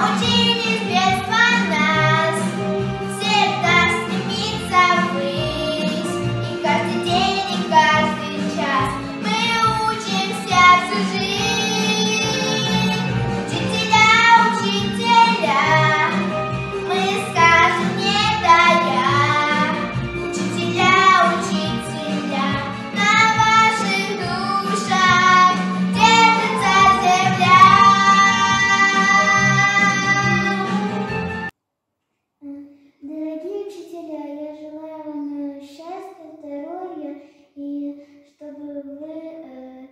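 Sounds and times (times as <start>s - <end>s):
girl singing: 0.0s - 30.9s, 32.4s - 39.9s
instrumental accompaniment: 0.0s - 31.5s.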